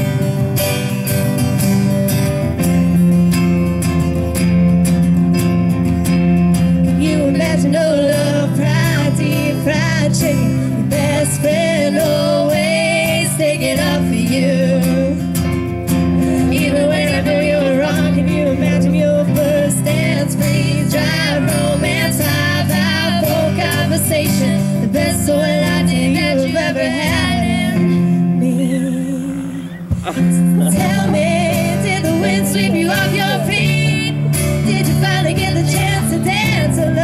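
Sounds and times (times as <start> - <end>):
song with guitar and keyboard: 0.0 - 37.0
person singing: 16.4 - 37.0.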